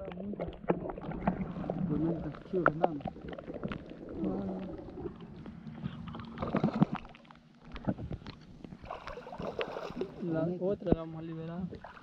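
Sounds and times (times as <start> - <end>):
water splashing against boat: 0.0 - 12.0.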